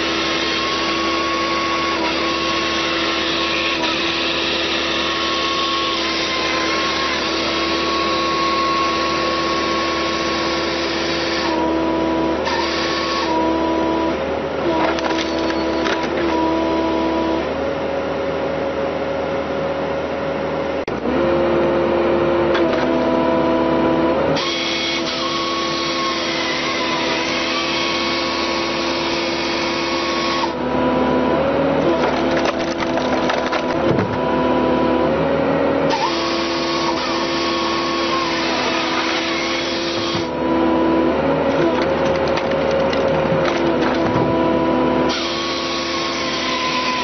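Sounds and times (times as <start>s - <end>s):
machinery cutting wood: 0.0s - 17.6s, 22.4s - 35.1s, 35.8s - 47.0s.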